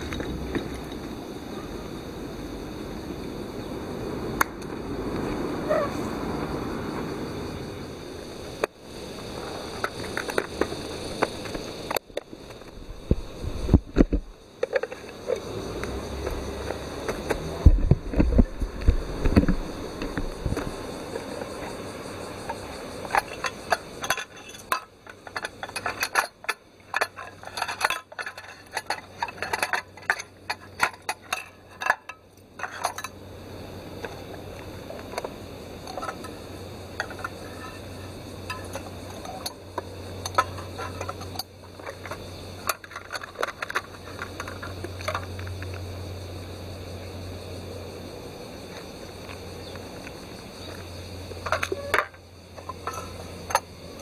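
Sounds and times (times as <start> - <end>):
metal clinking and clattering: 22.4 - 33.2, 35.1 - 45.8, 51.4 - 54.0.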